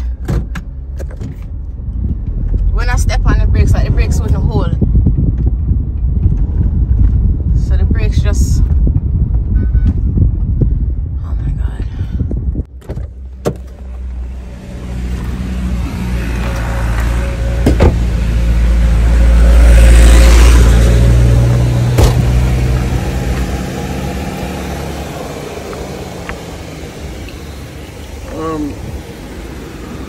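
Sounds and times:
vehicle passing by: 14.0s - 30.0s.

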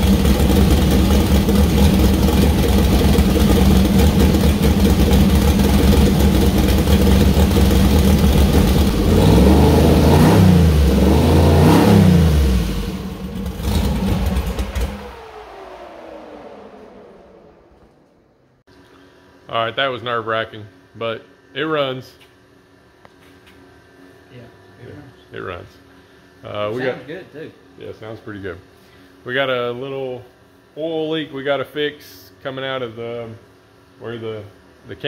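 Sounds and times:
car engine idling and revving: 0.0s - 18.6s
engine whine winding down: 0.0s - 18.7s.

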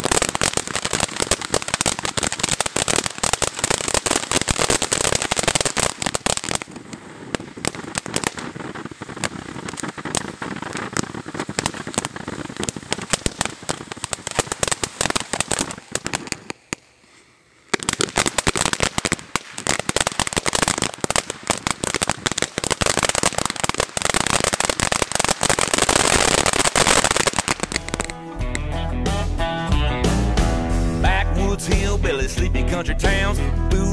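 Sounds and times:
firework fountain crackling: 0.0s - 29.4s.

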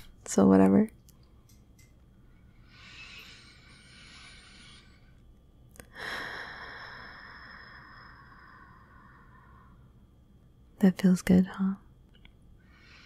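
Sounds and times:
woman breathing softly: 2.2s - 10.1s, 12.6s - 13.0s.

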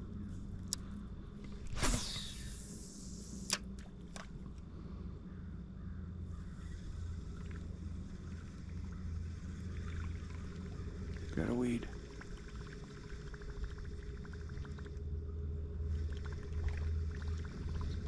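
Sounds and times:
fishing rod swish: 1.6s - 3.6s
boat motor humming: 2.4s - 18.0s.

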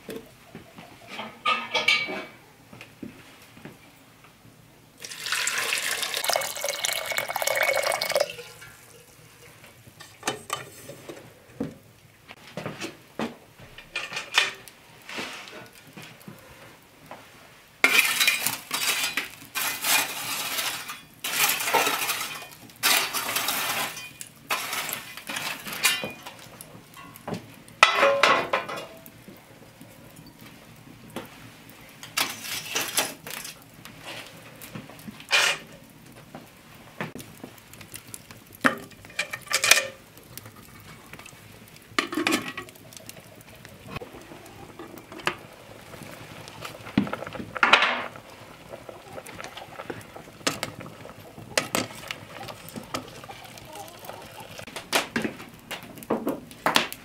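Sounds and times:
water pouring into pot: 5.0s - 10.2s, 37.8s - 54.7s
coals scraped across stone: 13.9s - 16.6s, 17.8s - 26.6s, 32.0s - 35.9s, 37.2s - 55.6s.

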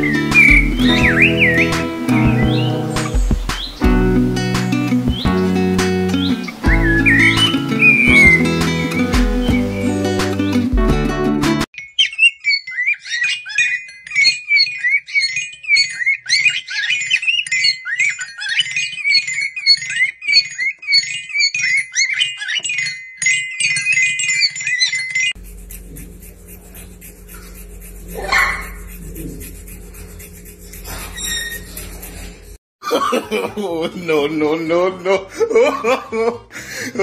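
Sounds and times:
rising and falling call: 0.0s - 10.1s
cockatiel chirping and whistling: 6.6s - 9.0s, 28.1s - 28.8s, 30.8s - 32.0s
steady low hum: 25.4s - 32.6s.

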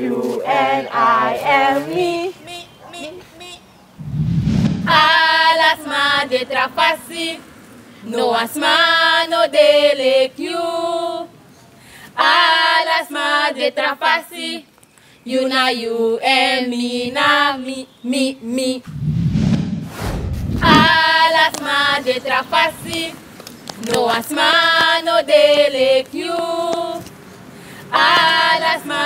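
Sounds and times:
girls singing a cappella: 0.0s - 3.2s, 4.9s - 11.4s, 12.1s - 18.9s, 20.6s - 27.2s, 27.8s - 29.0s.

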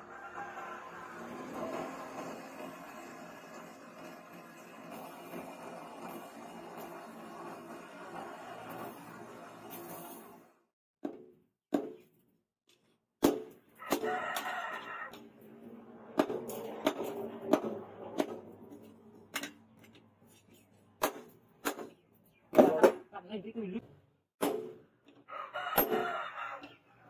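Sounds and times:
rooster crowing: 0.0s - 2.0s, 13.8s - 15.2s, 25.2s - 27.0s.

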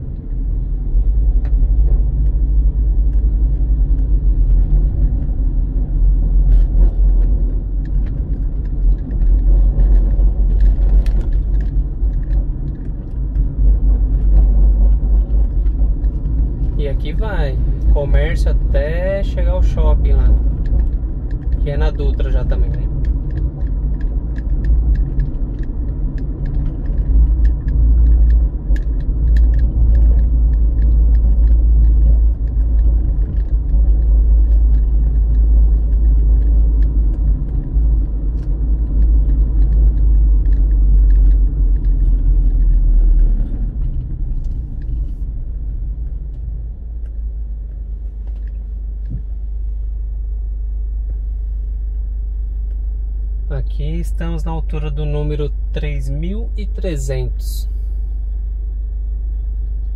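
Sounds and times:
car interior road rumble: 0.0s - 59.9s
small clicks and rattles: 6.4s - 49.3s.

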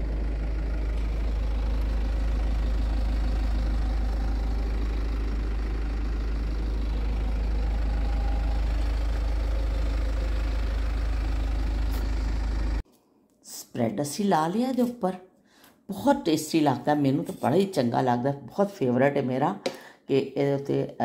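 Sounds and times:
vehicle engine idling: 0.0s - 12.8s.

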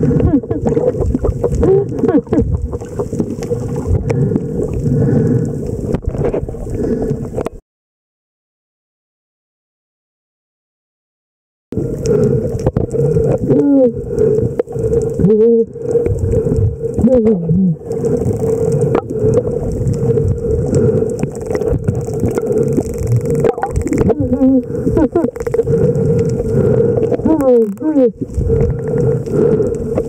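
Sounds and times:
muffled person laughing underwater: 0.0s - 2.8s, 24.0s - 25.5s
water noise: 0.0s - 7.6s, 11.7s - 30.0s
small clicks: 21.0s - 24.2s.

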